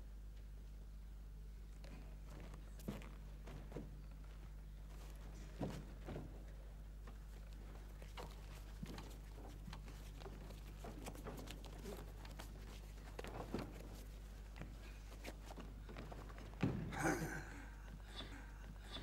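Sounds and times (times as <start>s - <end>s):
low steady hum: 0.0s - 19.0s
clothing rustling: 7.2s - 16.6s
body thumping onto wooden boards: 15.6s - 17.4s.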